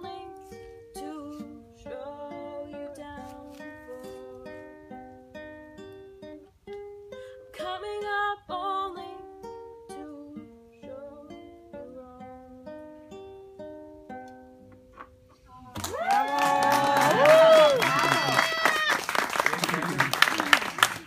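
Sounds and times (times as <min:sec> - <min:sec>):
fingerstyle acoustic guitar: 0:00.0 - 0:15.8.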